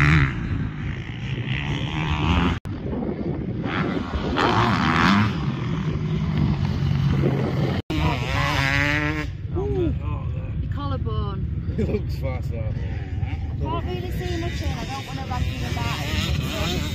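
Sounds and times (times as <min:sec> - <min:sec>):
motocross bike engine revving: 0:00.0 - 0:10.4, 0:12.7 - 0:16.9.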